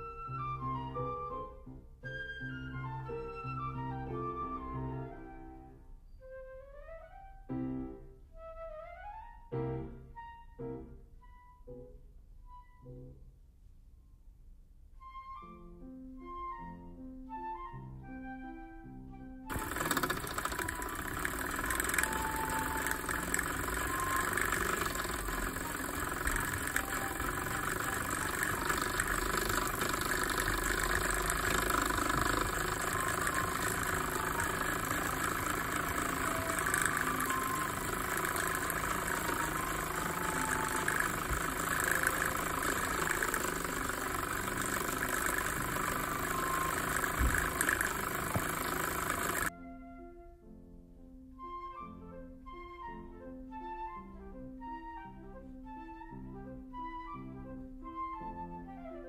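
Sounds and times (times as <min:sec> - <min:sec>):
steam engine exhaust beat: 0:19.5 - 0:49.5
steam hissing: 0:19.5 - 0:49.5.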